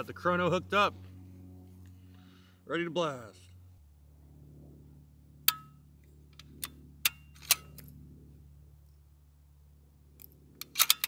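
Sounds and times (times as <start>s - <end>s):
faint low hum: 0.0s - 11.0s
rifle bolt clicks: 10.2s - 11.0s.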